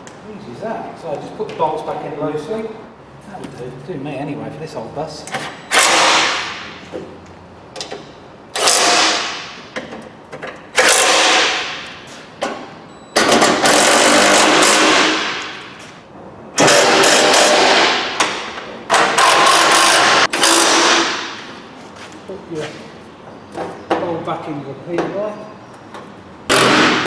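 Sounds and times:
impact driver bursts: 0:05.7 - 0:06.7, 0:08.6 - 0:09.5, 0:10.8 - 0:11.8, 0:13.2 - 0:15.8, 0:16.6 - 0:21.4, 0:26.5 - 0:27.0.

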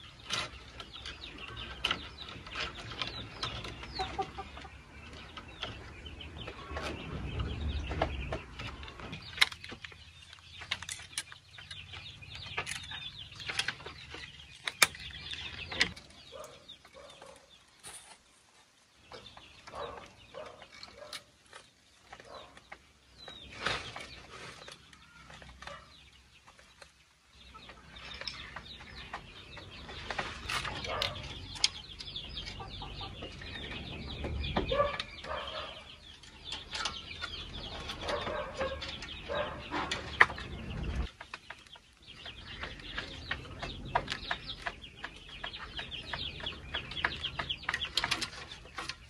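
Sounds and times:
chickens clucking: 0:00.0 - 0:49.0.

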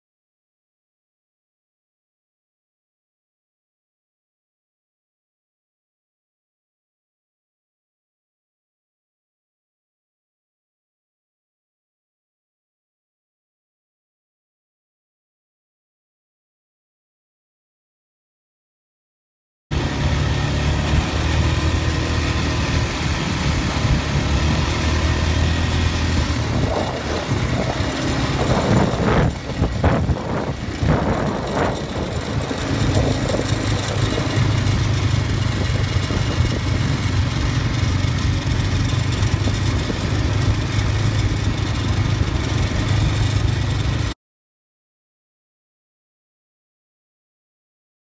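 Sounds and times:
quad engine running: 0:19.7 - 0:44.2.

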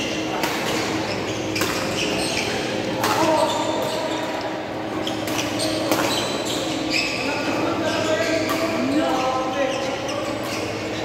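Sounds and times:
rackets hitting shuttlecock: 0:00.2 - 0:02.2, 0:02.9 - 0:04.5, 0:05.1 - 0:06.7.

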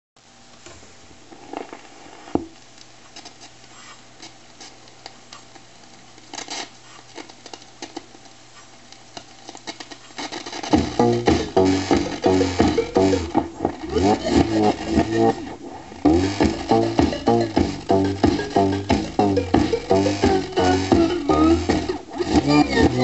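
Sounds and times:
record scratchy clicks and crackle: 0:00.2 - 0:23.0
music from record: 0:10.2 - 0:23.0
amplifier hum: 0:10.7 - 0:23.0.

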